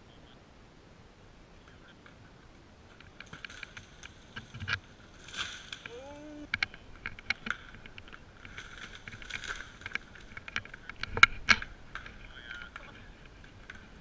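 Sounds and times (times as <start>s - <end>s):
short pitched call: 5.9s - 6.5s.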